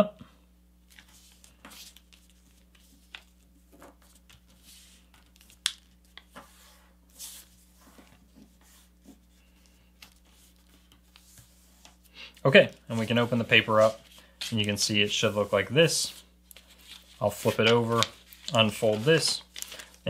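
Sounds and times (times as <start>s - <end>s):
faint steady hum: 0.0s - 20.0s
paper rustling and creasing: 0.8s - 20.0s
paper crinkle: 12.6s - 20.0s.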